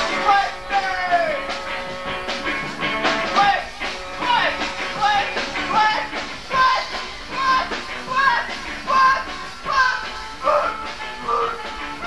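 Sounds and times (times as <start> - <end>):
live rock band playing: 0.0 - 12.0
person singing: 3.4 - 11.8.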